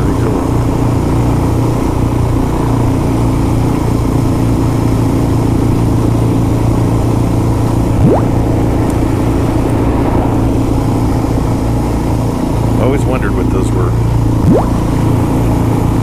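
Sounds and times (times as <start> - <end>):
motorcycle engine cruising: 0.0 - 16.0
short rising chirp: 7.8 - 11.9.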